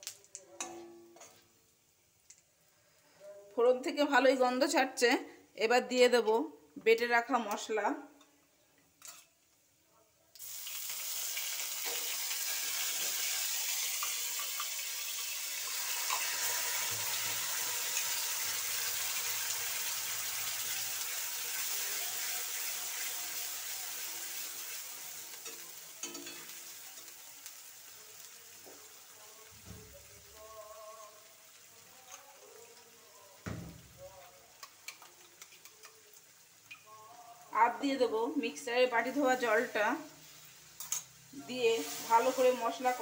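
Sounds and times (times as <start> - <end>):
paste sizzling in hot oil: 10.4 - 37.6, 38.5 - 43.0.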